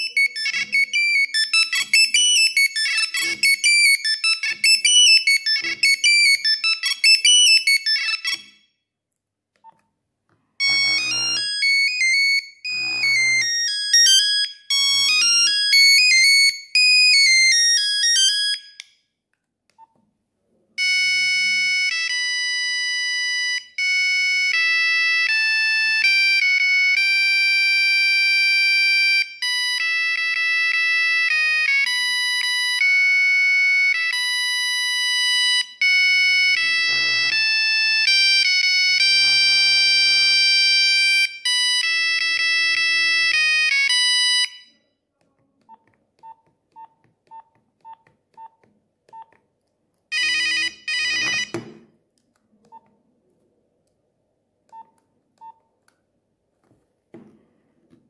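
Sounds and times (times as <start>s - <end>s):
monophonic phone ringtone: 0.0s - 8.6s, 10.6s - 18.6s, 20.8s - 44.8s, 50.1s - 51.8s
buzzy double tone: 12.7s - 13.5s
keypad beeps: 45.7s - 49.4s, 52.7s - 52.9s, 54.7s - 55.7s.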